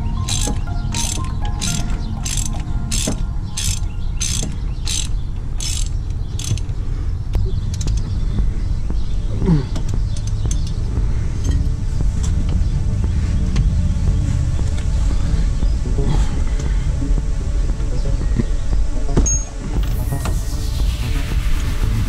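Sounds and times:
steady low rumble: 0.0s - 22.0s
ratchet wrench pawl clicks: 0.2s - 6.7s.

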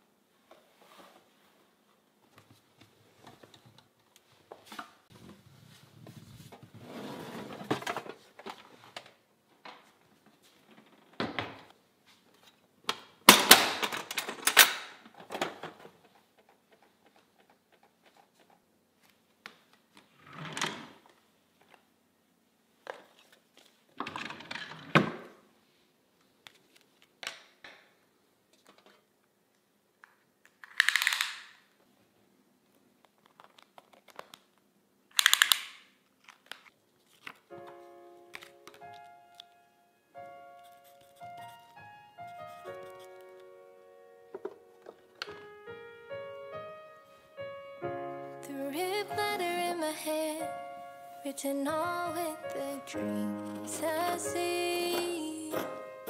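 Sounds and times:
metal box latches clicking: 13.3s - 14.9s
rustling of handled objects: 32.7s - 45.6s.

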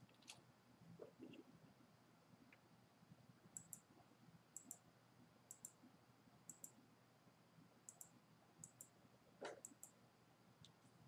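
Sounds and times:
computer mouse clicks: 3.6s - 3.9s, 4.6s - 4.8s, 5.5s - 5.8s, 6.5s - 6.8s, 7.9s - 10.0s.

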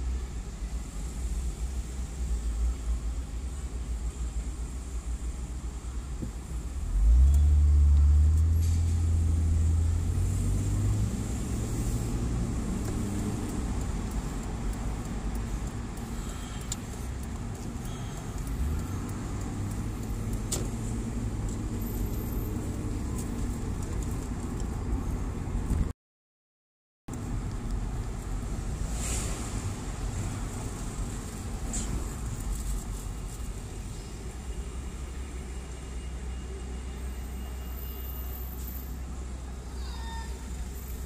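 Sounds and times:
road noise: 0.0s - 25.9s, 27.1s - 41.0s
car engine: 1.4s - 25.9s.

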